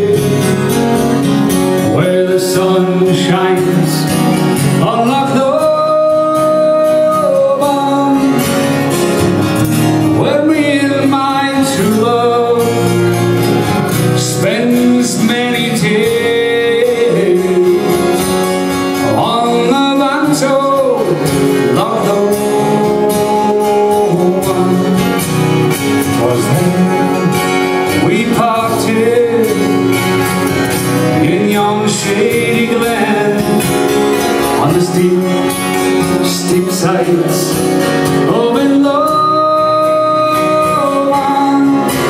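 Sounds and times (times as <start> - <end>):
accordion melody: 0.0 - 42.0
acoustic guitars strumming: 0.0 - 42.0.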